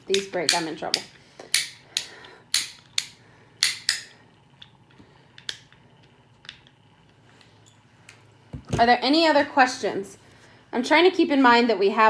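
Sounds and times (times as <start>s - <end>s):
hand tool clicking: 0.1s - 4.7s.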